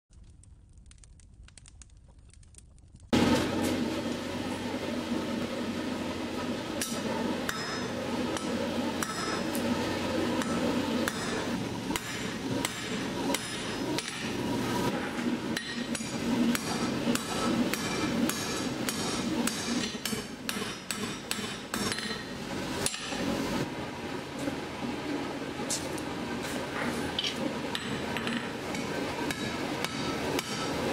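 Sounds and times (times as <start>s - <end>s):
hammer striking metal on anvil: 6.8s - 9.6s, 10.4s - 14.4s, 15.6s - 23.2s, 27.8s - 30.8s.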